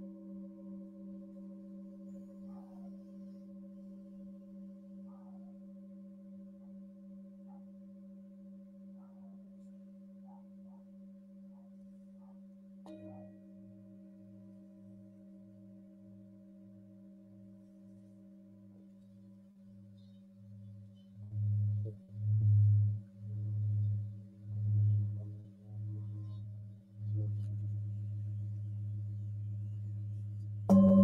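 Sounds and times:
large bowl struck: 12.8 - 14.7, 29.6 - 31.0
singing bowls ringing: 30.7 - 31.0.

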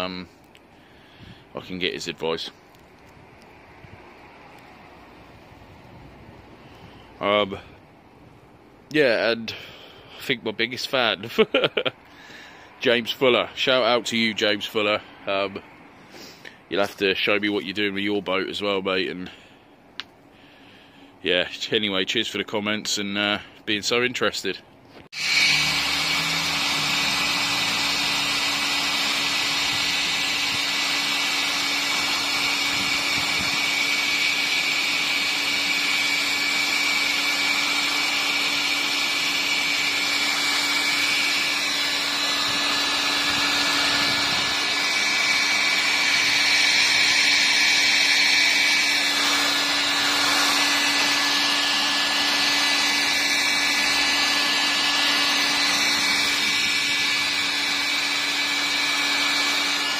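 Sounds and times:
heat gun fan humming: 25.1 - 59.9.

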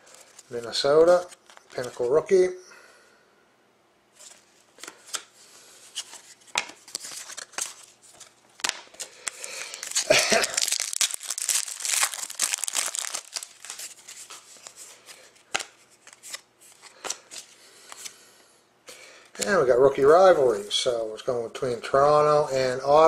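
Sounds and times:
cards clicking and snapping: 8.6 - 14.4
foil wrapper tearing and crinkling: 8.6 - 14.7.

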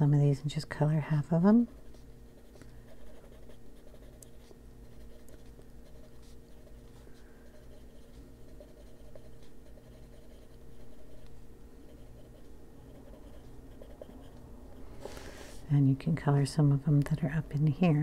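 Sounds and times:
faint steady hum: 0.0 - 18.0
coloured pencil scratching on paper: 1.7 - 15.6.

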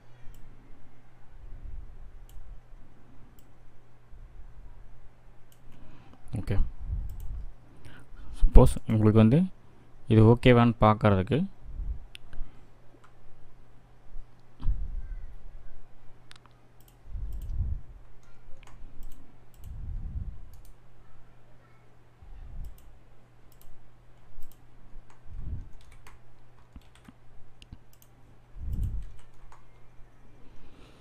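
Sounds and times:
faint electrical hum: 0.0 - 31.0
computer mouse clicking: 2.2 - 2.5, 3.3 - 3.6, 5.5 - 5.8, 7.0 - 7.5, 16.3 - 19.8, 20.4 - 20.8, 22.5 - 29.9.

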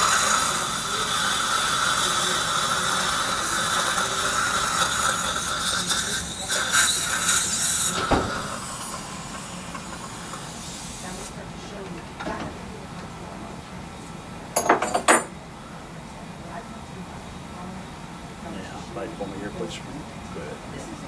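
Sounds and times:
dental suction hissing: 0.0 - 11.4.

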